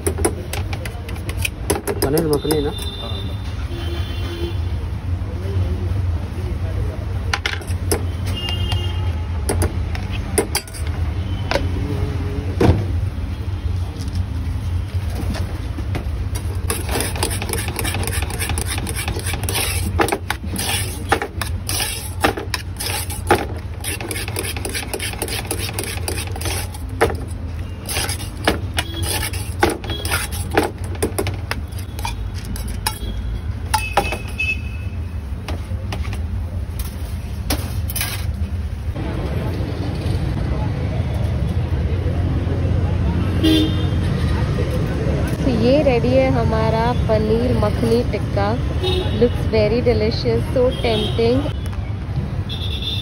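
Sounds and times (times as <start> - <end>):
low rumble of street traffic: 0.0 - 53.0
metal utensils clinking and scraping: 9.6 - 11.0, 16.6 - 33.2, 36.8 - 38.4.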